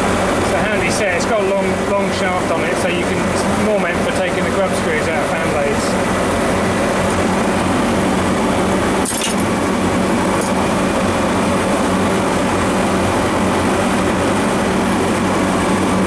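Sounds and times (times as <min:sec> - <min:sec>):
low electrical hum: 0:00.0 - 0:16.0
machinery drone: 0:00.0 - 0:16.0
hex key clinking on metal: 0:09.0 - 0:09.5.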